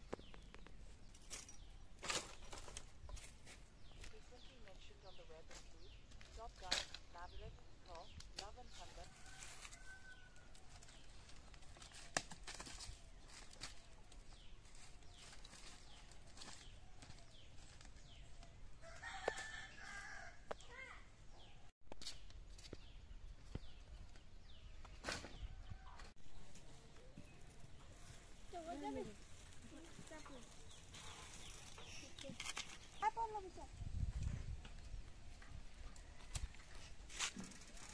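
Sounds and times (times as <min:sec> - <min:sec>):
rustling of sticks: 0:00.0 - 0:20.1, 0:21.9 - 0:37.9
dry sticks snapping: 0:11.5 - 0:13.8.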